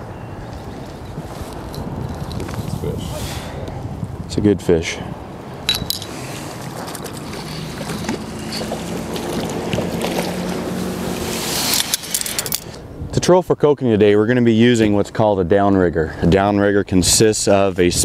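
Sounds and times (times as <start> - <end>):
wind on microphone: 0.0 - 13.4
boat motor droning: 6.5 - 11.7.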